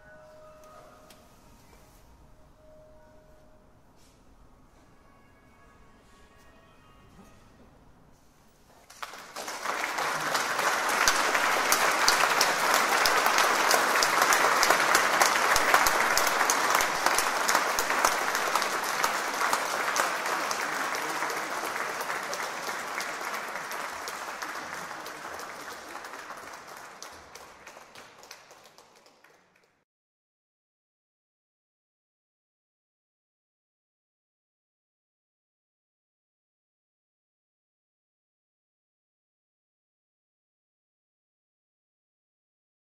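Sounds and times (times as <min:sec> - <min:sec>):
audience applauding: 0:08.8 - 0:29.8.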